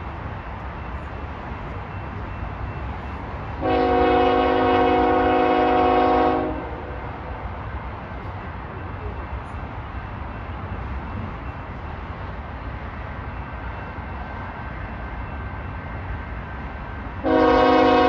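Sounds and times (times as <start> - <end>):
locomotive air horn blast: 3.6 - 7.0, 17.2 - 18.0.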